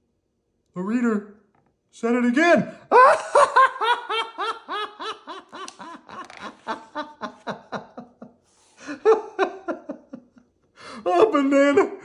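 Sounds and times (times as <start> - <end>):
person laughing: 2.9 - 11.0.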